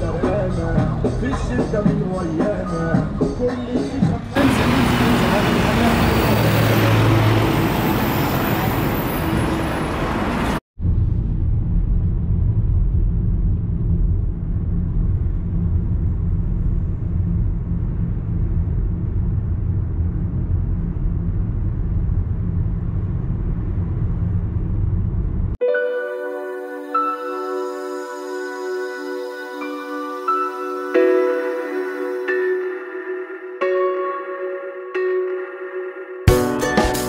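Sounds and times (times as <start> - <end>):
street and traffic noise: 0.0 - 10.6
muffled road noise rumble: 4.1 - 25.6.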